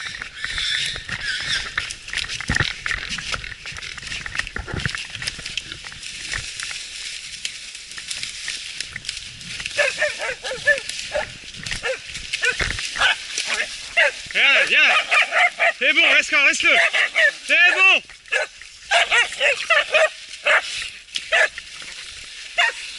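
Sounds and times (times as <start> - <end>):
brushing past twigs: 0.0 - 22.9
footsteps on dry leaves: 0.0 - 22.9.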